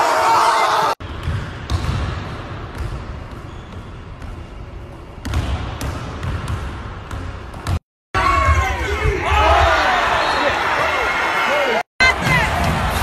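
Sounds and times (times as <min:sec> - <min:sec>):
basketball bouncing on wood floor: 0:01.1 - 0:03.6, 0:05.2 - 0:07.8.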